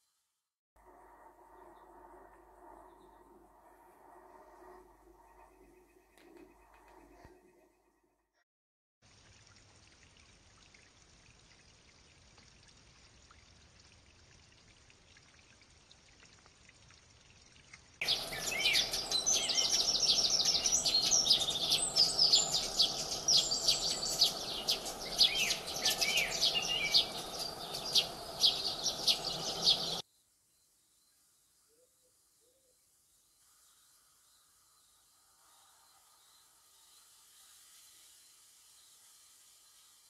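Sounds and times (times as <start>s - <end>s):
faint steady hiss: 9.0s - 40.0s
sparrows chirping: 18.0s - 30.0s.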